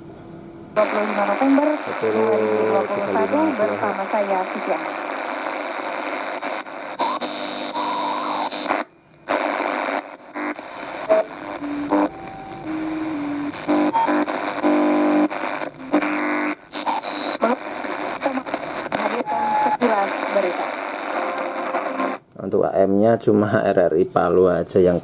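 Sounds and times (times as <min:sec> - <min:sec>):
snatches of radio music: 0:00.8 - 0:22.2
radio static and hiss: 0:00.8 - 0:25.0
radio tuning whistles: 0:04.8 - 0:22.2.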